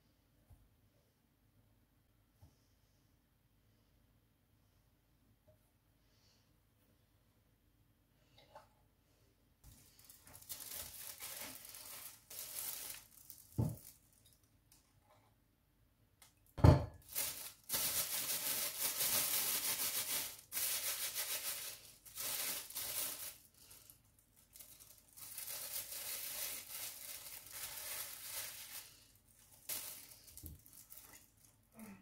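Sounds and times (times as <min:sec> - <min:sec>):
plastic bag crinkling: 0:09.6 - 0:14.5, 0:17.0 - 0:31.9.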